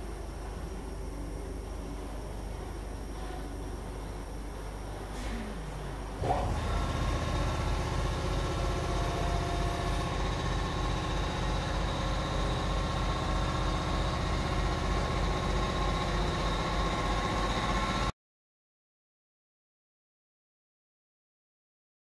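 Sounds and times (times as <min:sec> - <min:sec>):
faint steady whine: 0:00.0 - 0:18.1
feed mill machinery humming: 0:00.0 - 0:18.1.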